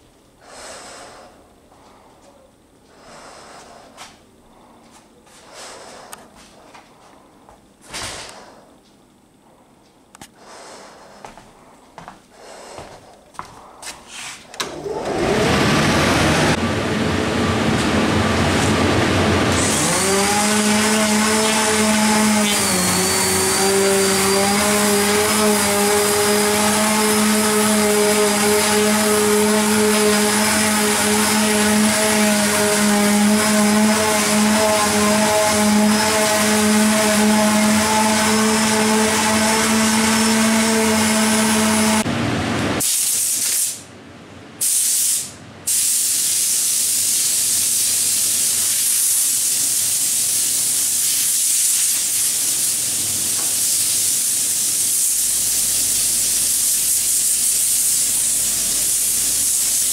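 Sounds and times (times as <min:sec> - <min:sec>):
electric fan rushing air: 0:00.0 - 0:59.9
orbital sander whine: 0:14.7 - 0:42.1.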